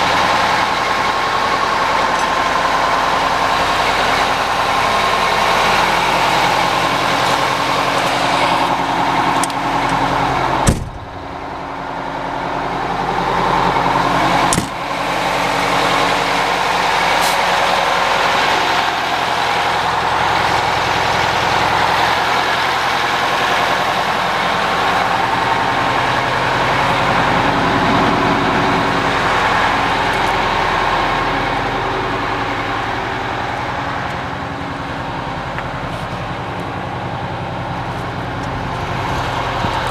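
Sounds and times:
diesel engine idling: 0.0s - 39.9s
sharp knock: 10.7s - 11.1s.

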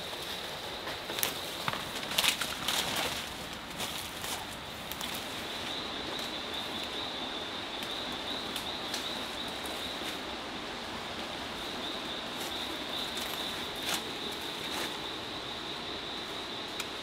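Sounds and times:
footsteps in leaf litter: 0.0s - 5.4s.

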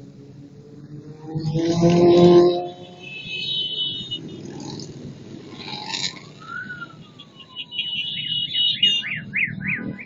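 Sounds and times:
motorcycle engines rumbling past: 0.0s - 10.0s
siren wailing and yelping: 5.8s - 10.0s.

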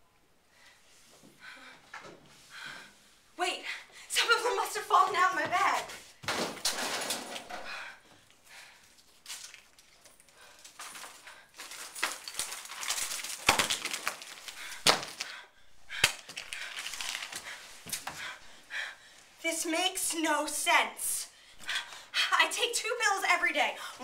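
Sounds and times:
objects clattering on wooden floor: 6.2s - 7.8s, 9.4s - 15.2s.

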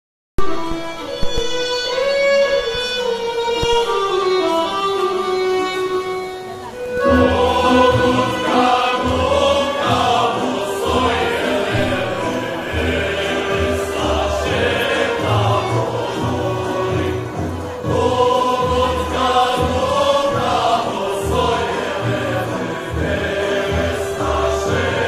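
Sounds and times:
solo melody line: 0.4s - 25.0s
men singing together: 7.1s - 25.0s.

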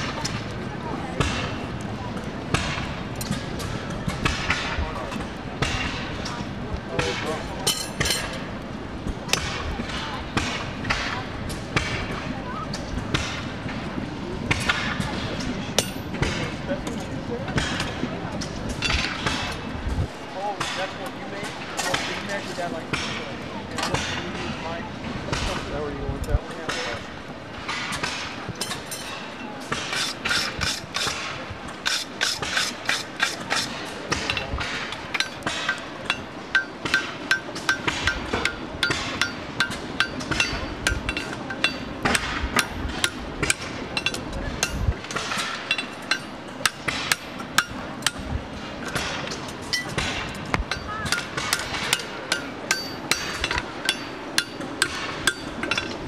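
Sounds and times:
hammer striking horseshoe on anvil: 7.0s - 8.4s, 27.7s - 48.2s, 48.8s - 56.0s
anvil ringing: 50.7s - 56.0s.

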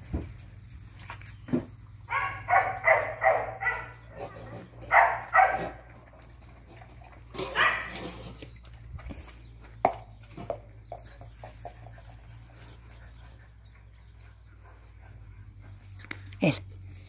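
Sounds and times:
puppies barking: 1.9s - 8.4s.

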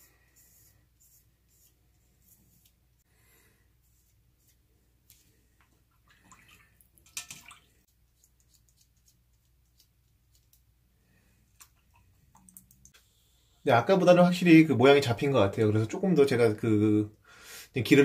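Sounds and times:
small water sounds: 5.7s - 8.9s.

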